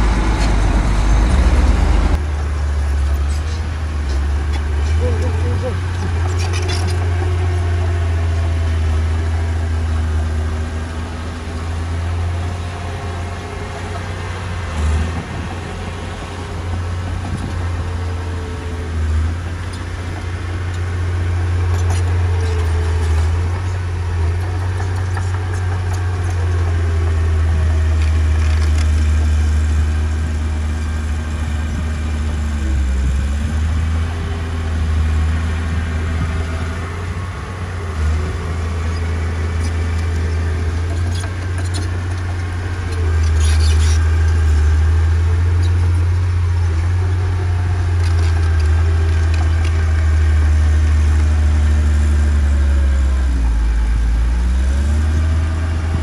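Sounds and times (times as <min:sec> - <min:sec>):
heavy diesel engine rumbling: 0:00.0 - 0:56.0.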